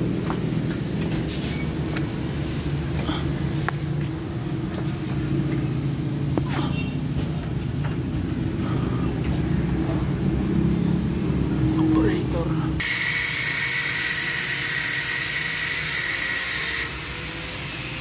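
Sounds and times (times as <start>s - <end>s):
vehicle engine idling: 0.0s - 12.9s.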